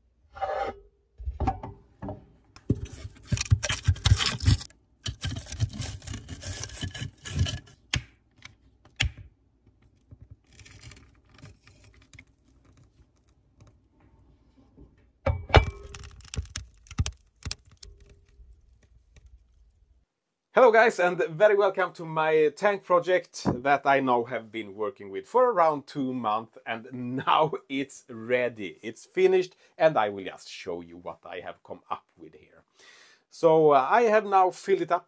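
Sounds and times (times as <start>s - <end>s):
rustling: 2.7s - 7.8s.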